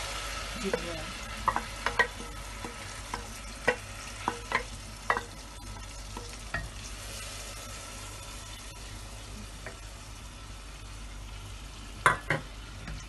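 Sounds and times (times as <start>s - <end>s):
paste sizzling in hot oil: 0.0s - 13.0s
wooden spoon tapping steel bowl: 0.7s - 5.3s.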